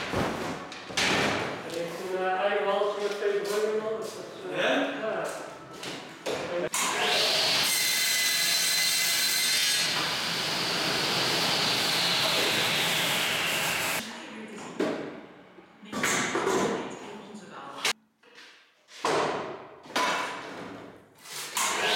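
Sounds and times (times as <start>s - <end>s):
saw blade cutting wood: 6.8s - 14.0s, 21.3s - 21.9s.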